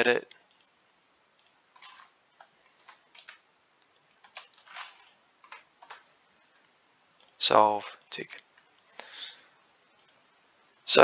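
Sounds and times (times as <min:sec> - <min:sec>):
mouse and keyboard clicking: 0:01.4 - 0:03.4, 0:04.2 - 0:06.0, 0:10.0 - 0:10.2.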